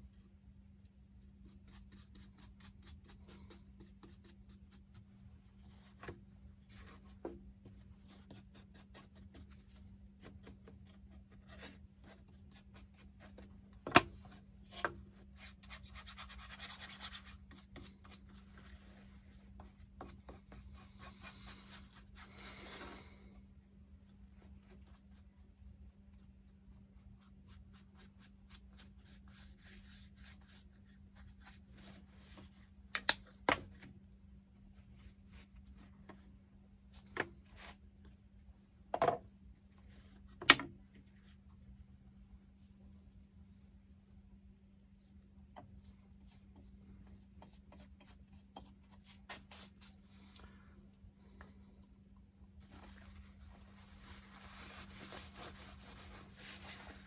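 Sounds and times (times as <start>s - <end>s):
paintbrush strokes scratching: 52.6s - 57.0s.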